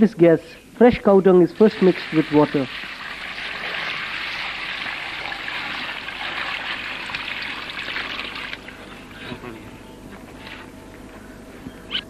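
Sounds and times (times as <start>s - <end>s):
water pouring onto dung: 1.6s - 8.8s.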